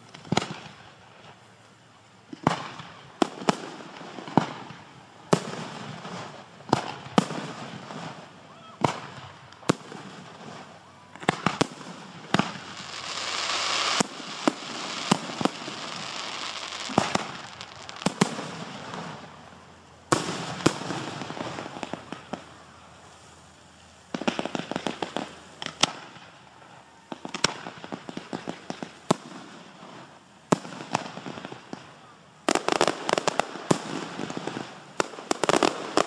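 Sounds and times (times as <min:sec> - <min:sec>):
crackling hiss of fireworks: 0:00.0 - 0:36.0
fireworks volleys of pops: 0:00.0 - 0:36.0.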